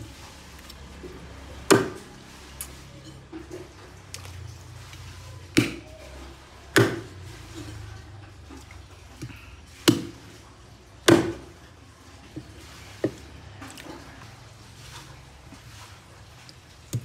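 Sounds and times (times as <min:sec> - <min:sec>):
cleaver chopping meat on wood: 0:01.7 - 0:02.0, 0:05.5 - 0:05.9, 0:06.7 - 0:07.1, 0:09.2 - 0:10.3, 0:11.0 - 0:11.5.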